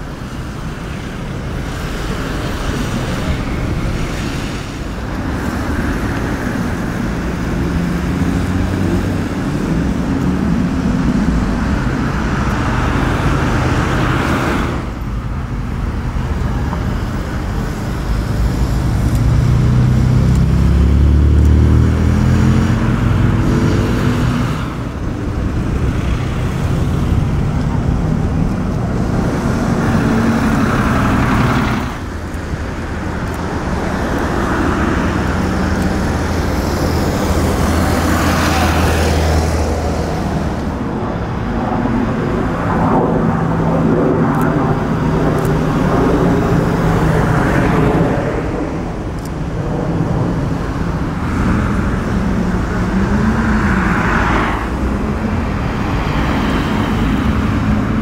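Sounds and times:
cars passing at low speed: 0.0s - 58.0s
car engine revving: 17.3s - 58.0s.

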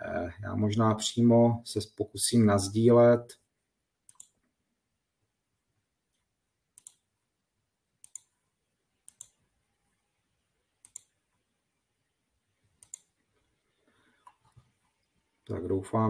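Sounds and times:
computer mouse clicking: 4.1s - 4.5s, 6.8s - 7.1s, 8.0s - 8.4s, 9.0s - 9.4s, 10.8s - 11.2s, 12.8s - 13.1s.

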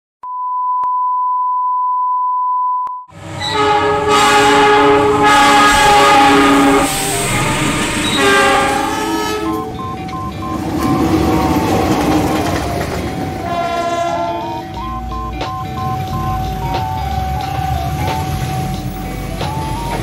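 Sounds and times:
steady test-tone beep: 0.2s - 3.1s, 9.4s - 12.0s, 14.4s - 18.8s, 19.4s - 20.0s
engine and rail noise: 3.1s - 20.0s
locomotive horn chords: 3.2s - 12.2s, 12.8s - 15.1s.

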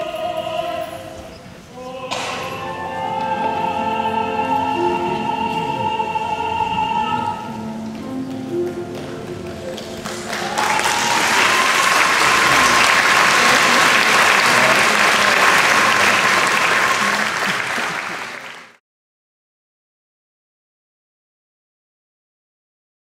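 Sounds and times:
singers holding high note: 1.7s - 7.9s, 10.2s - 17.6s
audience applauding: 8.9s - 18.8s.

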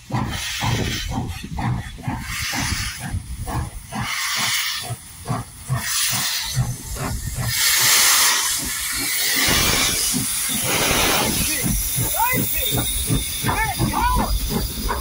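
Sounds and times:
steam hissing: 0.0s - 15.0s
steam locomotive chuffing: 0.0s - 15.0s.

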